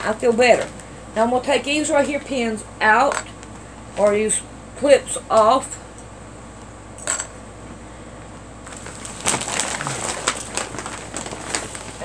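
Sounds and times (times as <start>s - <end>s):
stiff plastic crinkling: 8.6s - 12.0s.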